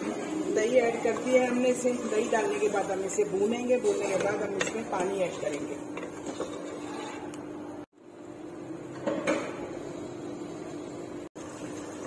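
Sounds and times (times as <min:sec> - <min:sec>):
wooden spoon stirring: 0:00.0 - 0:07.4.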